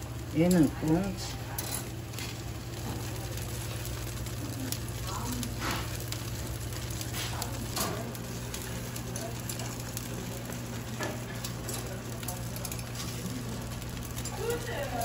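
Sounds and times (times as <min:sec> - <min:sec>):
fish sizzling on grill: 0:00.0 - 0:15.0.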